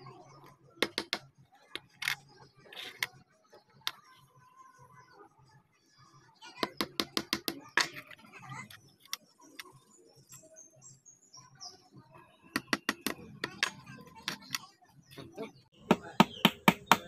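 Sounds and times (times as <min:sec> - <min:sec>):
wood block tapping pin into can: 0:00.8 - 0:01.2, 0:12.6 - 0:14.6.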